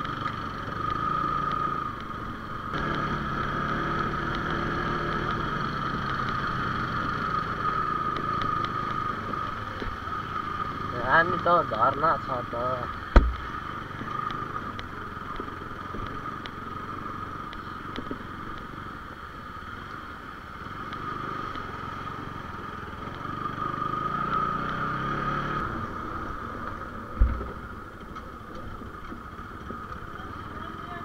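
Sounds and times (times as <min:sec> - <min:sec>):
motorcycle engine on rough track: 0:00.0 - 0:31.0
thump: 0:13.1 - 0:13.4, 0:27.2 - 0:27.6.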